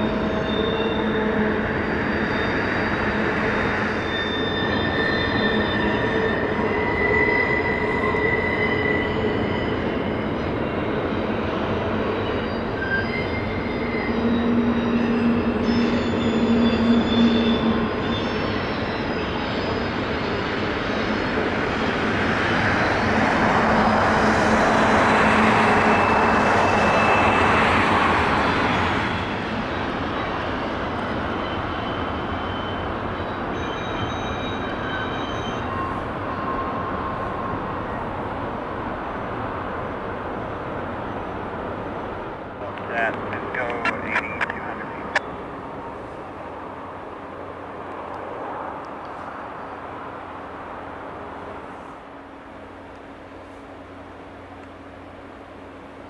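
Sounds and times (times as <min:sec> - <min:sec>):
train wheels squealing: 0:00.0 - 0:38.9.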